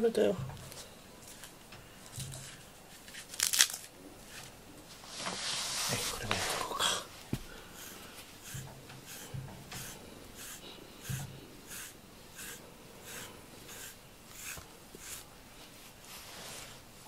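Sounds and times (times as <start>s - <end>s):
brush stroking through fur: 4.9s - 6.8s, 7.7s - 17.0s.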